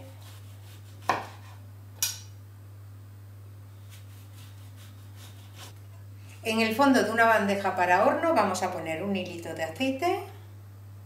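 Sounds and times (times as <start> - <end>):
knife slicing a tomato: 0.0 - 2.2, 3.8 - 5.8
knife knocking on cutting board: 1.1 - 1.4.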